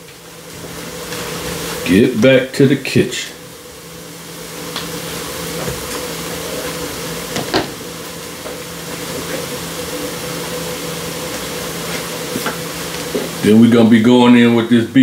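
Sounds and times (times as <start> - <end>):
onions and mushrooms cooking in skillet: 0.0 - 15.0
steady hum and hiss: 0.0 - 15.0.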